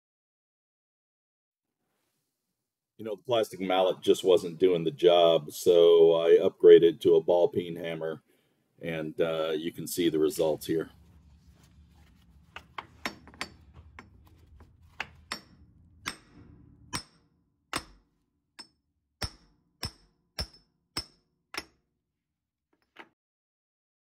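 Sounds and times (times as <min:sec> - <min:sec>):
hammer striking metal: 0:12.6 - 0:21.8.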